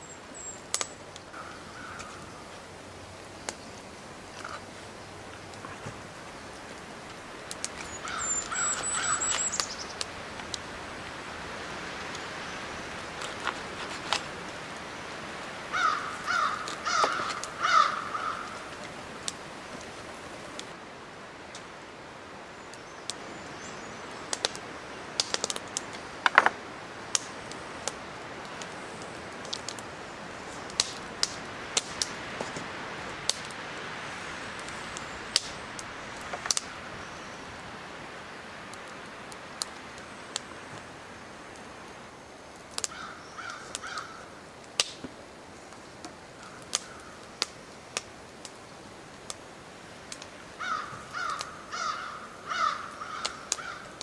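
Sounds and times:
crow cawing: 1.4s - 2.4s, 8.0s - 9.4s, 15.7s - 18.7s, 42.9s - 44.4s, 46.4s - 47.2s, 50.6s - 54.0s.

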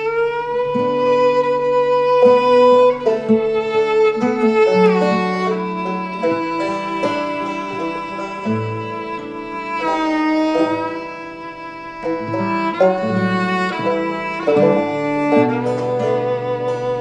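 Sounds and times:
fiddle melody: 0.0s - 17.0s
low bowed strings: 0.0s - 17.0s.

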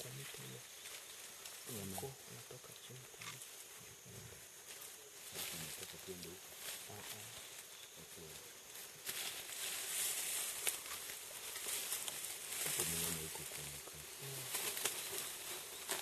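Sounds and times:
leaves rustling: 0.0s - 16.0s
murmured voices: 1.7s - 4.4s, 5.4s - 8.6s, 12.7s - 14.7s
twigs crackling: 4.6s - 16.0s.

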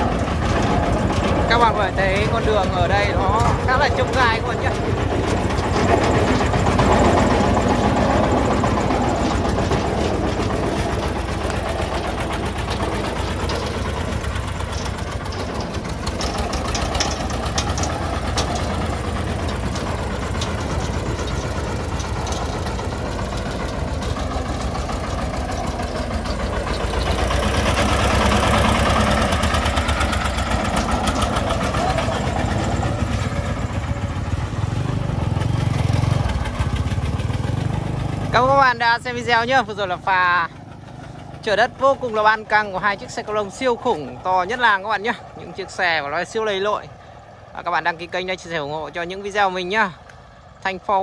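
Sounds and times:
diesel truck engine knocking: 0.0s - 51.0s.

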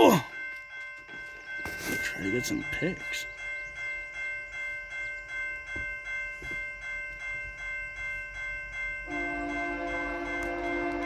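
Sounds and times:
crossing warning bell ringing: 0.0s - 11.0s
locomotive air horn chord: 9.1s - 11.0s.

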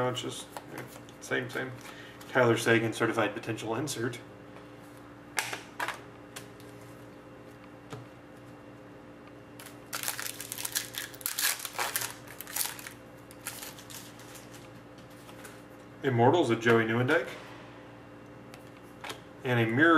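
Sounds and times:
faint steady hum: 0.0s - 19.9s
foil wrapper tearing and crinkling: 9.6s - 14.7s.

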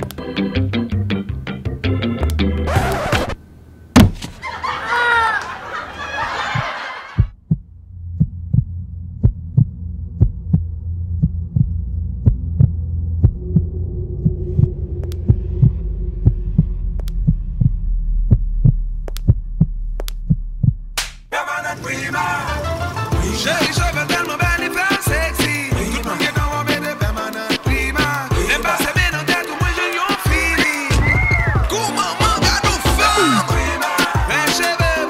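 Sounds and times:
low steady hum: 7.3s - 21.3s
sharp pulsing clicks: 8.2s - 21.3s.

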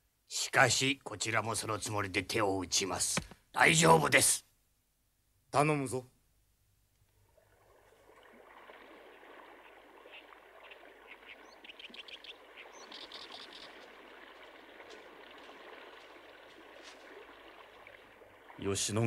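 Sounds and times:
birds chirping: 9.0s - 19.0s.

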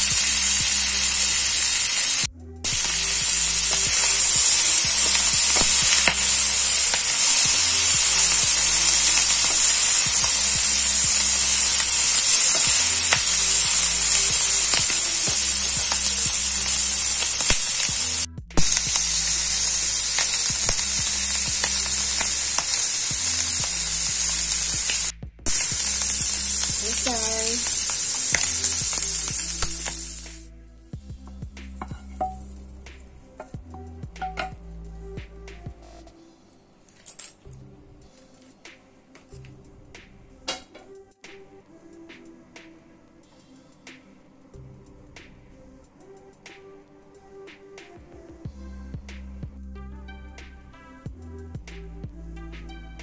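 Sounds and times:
food sizzling in a hot wok: 0.0s - 30.5s, 31.6s - 32.8s.

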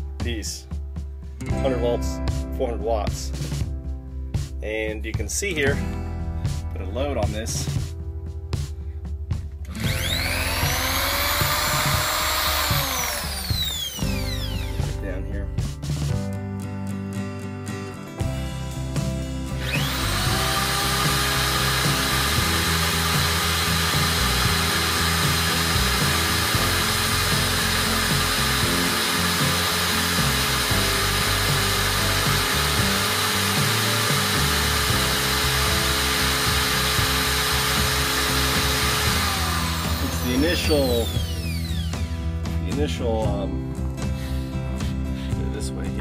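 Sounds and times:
electric drill spinning: 9.7s - 14.9s, 19.6s - 42.2s.

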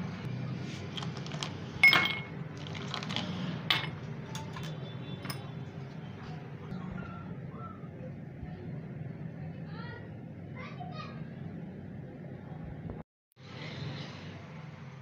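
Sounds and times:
glass and steel clinking: 1.8s - 2.4s, 3.7s - 5.6s.

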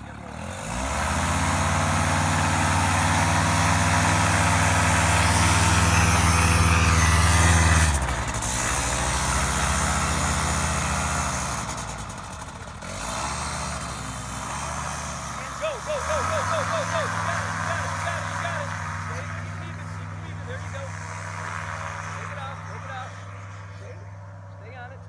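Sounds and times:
paramotor engine droning: 0.0s - 25.0s.

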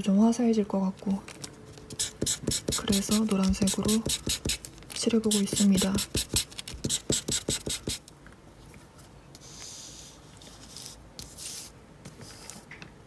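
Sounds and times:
colouring tool rubbing on paper: 1.9s - 4.6s, 5.2s - 8.0s.

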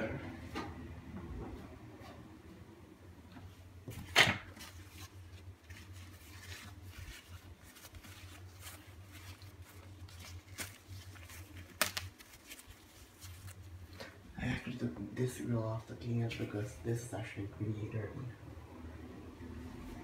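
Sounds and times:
steady low hum: 0.0s - 20.0s
paper rustling: 3.9s - 14.1s.

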